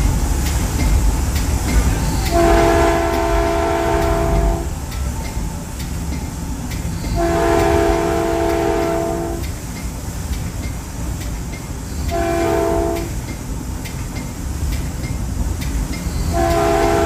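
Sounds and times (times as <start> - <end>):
train rumbling on rails: 0.0 - 17.0
train air horn blasts: 2.2 - 4.7, 7.2 - 9.4, 12.0 - 13.2, 16.2 - 17.0.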